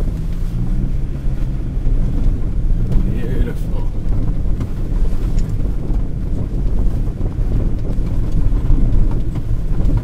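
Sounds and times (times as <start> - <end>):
pickup truck driving off-road: 0.0 - 10.0.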